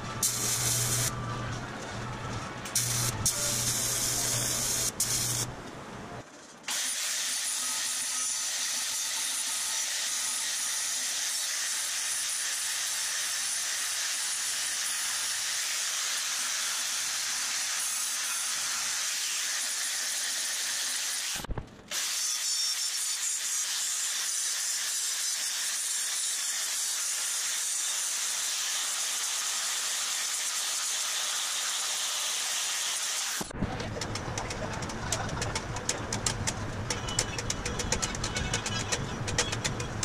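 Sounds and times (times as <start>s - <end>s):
welder buzzing: 0.0s - 5.6s
angle grinder hissing on metal: 0.2s - 1.1s, 2.8s - 5.5s, 6.7s - 33.5s.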